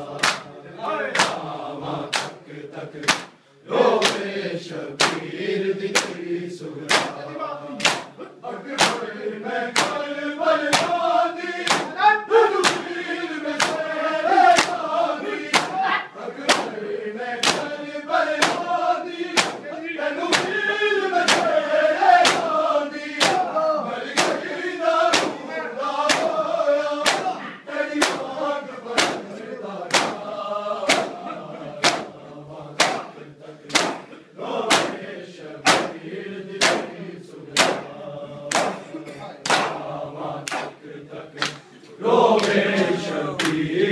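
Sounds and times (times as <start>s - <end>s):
men chanting in unison: 0.0s - 43.9s
hands beating chests: 0.2s - 0.5s, 1.2s - 1.4s, 2.1s - 2.4s, 3.0s - 3.4s, 4.0s - 4.3s, 5.0s - 5.3s, 5.9s - 6.2s, 6.8s - 7.2s, 7.8s - 8.2s, 8.8s - 9.1s, 9.7s - 16.8s, 17.4s - 31.2s, 31.8s - 32.2s, 32.8s - 36.0s, 36.6s - 37.9s, 38.5s - 40.8s, 42.4s - 42.8s, 43.4s - 43.6s.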